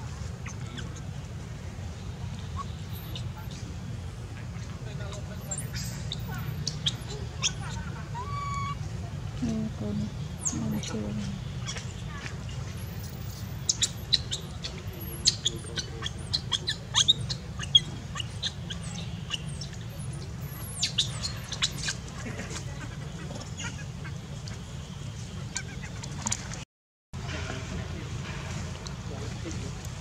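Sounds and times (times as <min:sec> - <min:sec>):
birds chirping: 0:09.4 - 0:26.1.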